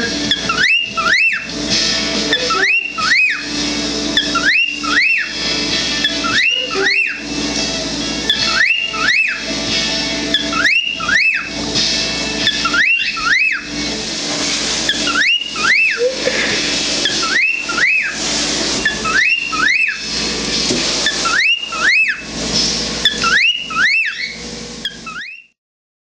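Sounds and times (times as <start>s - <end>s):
cockatiel wolf-whistling: 0.0s - 1.5s, 2.2s - 7.3s, 8.2s - 9.5s, 10.3s - 11.6s, 12.4s - 13.8s, 14.9s - 18.2s, 18.8s - 20.2s, 21.0s - 22.3s, 23.0s - 25.6s
steady hiss: 13.7s - 21.3s.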